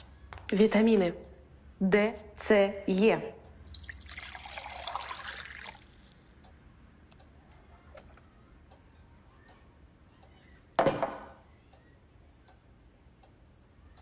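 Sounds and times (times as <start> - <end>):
juice poured into a glass: 3.7 - 6.3.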